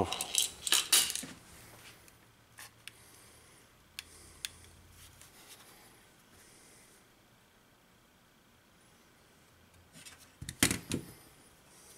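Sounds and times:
small parts clicking: 0:00.0 - 0:01.3
low room noise: 0:00.0 - 0:11.9.

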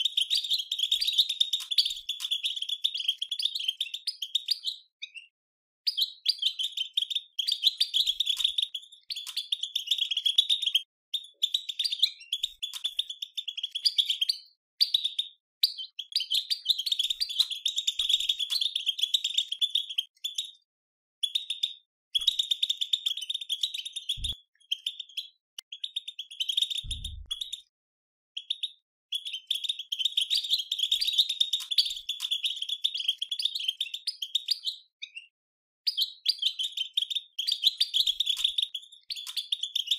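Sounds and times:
dull low thumps: 0:26.9 - 0:27.4.

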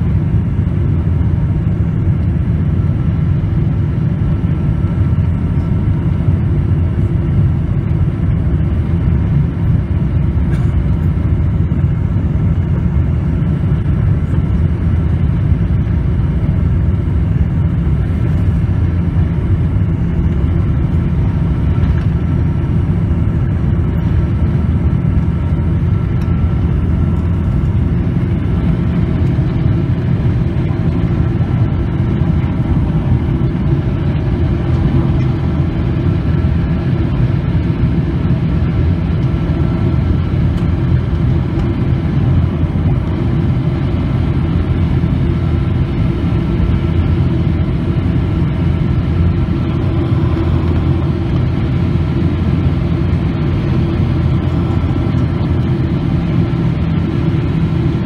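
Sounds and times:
aircraft cabin low drone: 0:00.0 - 0:58.0.

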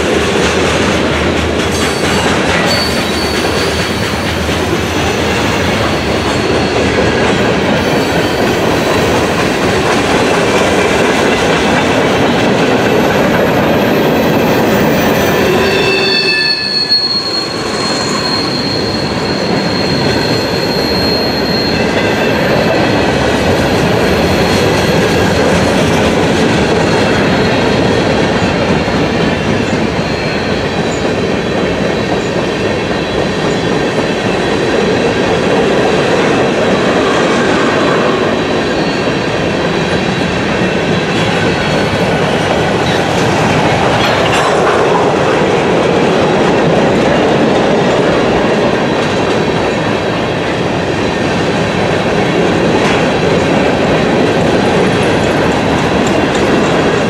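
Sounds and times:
train wheels rumbling over rails: 0:00.0 - 0:57.0
faint high squeal: 0:02.7 - 0:04.0, 0:14.6 - 0:22.3.

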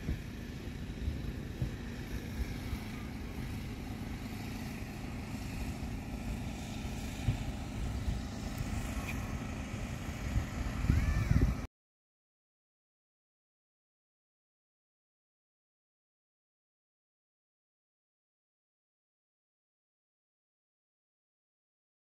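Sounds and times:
wind buffeting microphone: 0:00.0 - 0:11.7.

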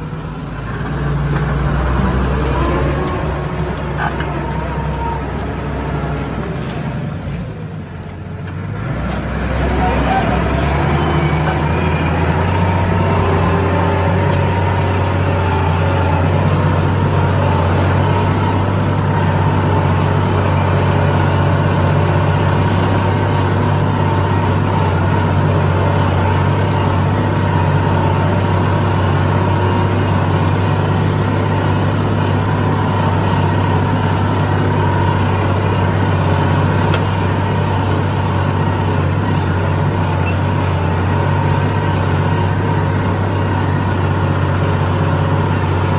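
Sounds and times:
tractor engine droning: 0:00.0 - 0:45.9.

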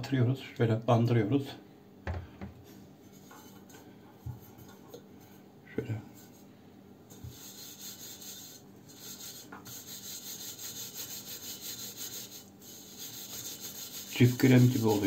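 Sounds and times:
steel wool scrubbing metal: 0:07.1 - 0:15.0.

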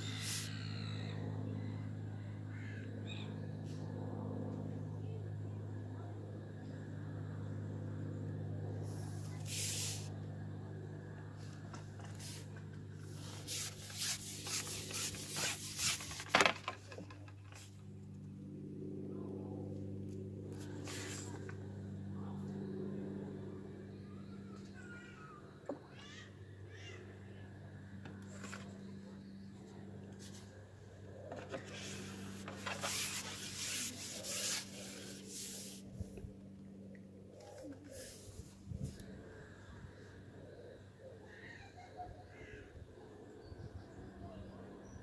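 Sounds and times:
fishing pole rubbing and scraping: 0:00.0 - 0:00.5, 0:13.2 - 0:16.6, 0:31.5 - 0:35.8
steady low hum: 0:00.0 - 0:45.0.

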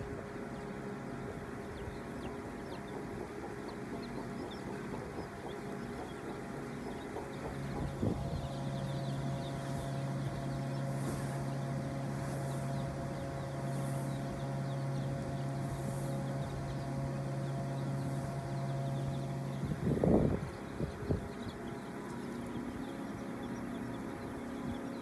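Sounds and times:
chicks peeping: 0:00.0 - 0:25.0
motor humming: 0:00.0 - 0:25.0.

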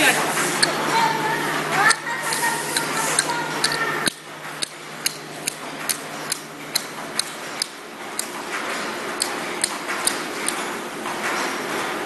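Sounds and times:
labeling machine running: 0:00.0 - 0:12.0
sharp metallic ticks: 0:01.9 - 0:08.3, 0:09.2 - 0:10.6.

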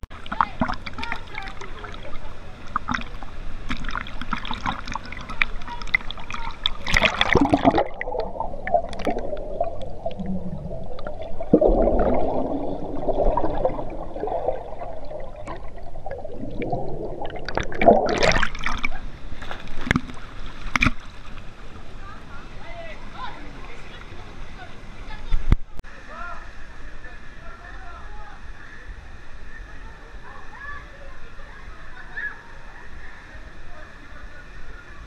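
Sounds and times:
muffled underwater bubbles: 0:00.2 - 0:21.1
river water splashing: 0:00.2 - 0:22.4.

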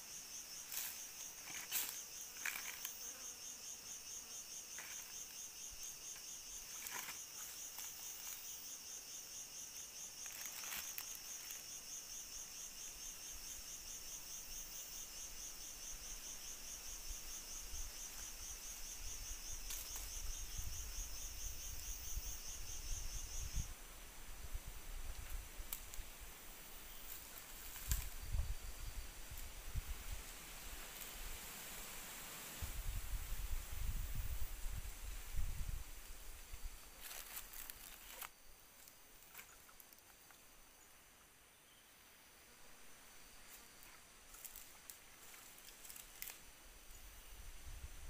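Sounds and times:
insect trilling: 0:00.0 - 0:23.8, 0:37.0 - 0:40.8.

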